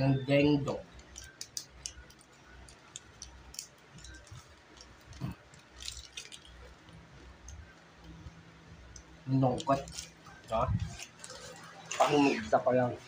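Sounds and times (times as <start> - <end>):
plastic snack bag crackling: 0.7 - 7.6, 9.4 - 12.1.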